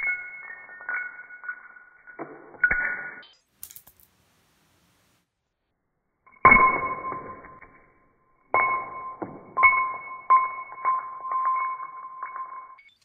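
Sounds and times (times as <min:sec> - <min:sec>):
glass shards striking tile: 0:00.0 - 0:04.1, 0:08.5 - 0:13.0
bell-like ringing tones: 0:08.7 - 0:13.0.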